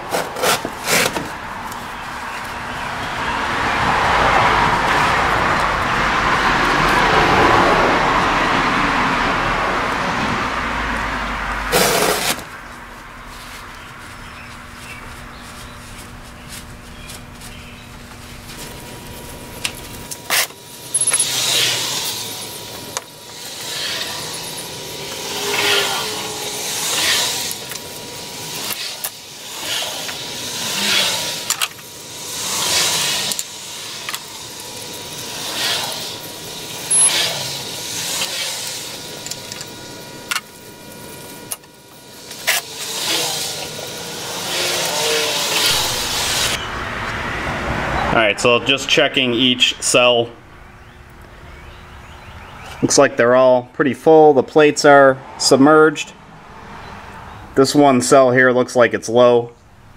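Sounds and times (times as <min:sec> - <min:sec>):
long hiss: 0:20.2 - 0:46.6.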